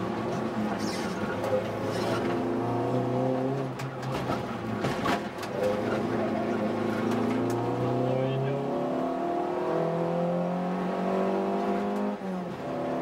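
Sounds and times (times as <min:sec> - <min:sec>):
car engine revving: 0:00.7 - 0:13.0.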